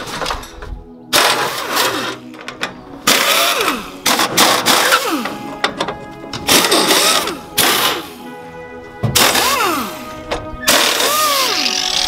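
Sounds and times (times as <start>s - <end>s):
pneumatic drill running: 3.1s - 5.3s, 10.7s - 12.0s.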